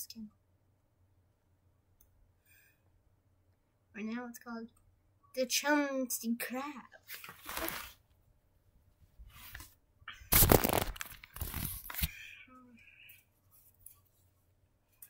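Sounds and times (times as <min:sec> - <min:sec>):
rustling and scraping handling noises: 0:07.0 - 0:08.0, 0:09.2 - 0:12.1, 0:13.4 - 0:15.0.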